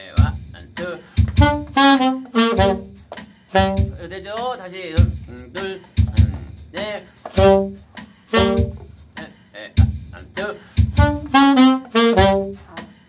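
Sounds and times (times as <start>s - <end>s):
saxophones playing short notes: 1.4s - 4.0s, 7.3s - 8.9s, 11.0s - 12.9s.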